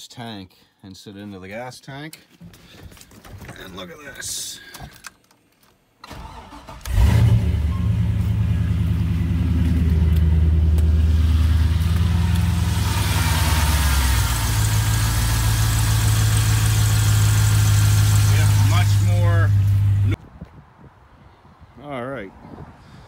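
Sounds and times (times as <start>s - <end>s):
engine starting and idling: 6.0s - 19.9s.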